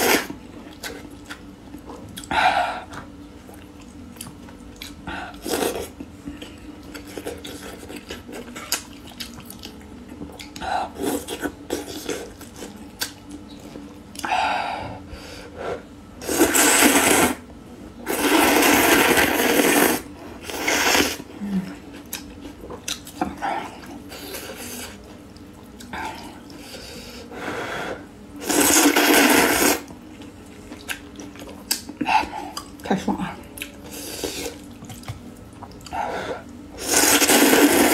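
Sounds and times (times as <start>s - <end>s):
chewing and mouth sounds: 0.6s - 14.3s, 21.7s - 26.7s, 30.1s - 32.8s, 33.5s - 36.0s
person slurping noodle soup: 16.2s - 17.4s, 18.1s - 21.3s, 28.4s - 29.9s, 36.8s - 37.9s.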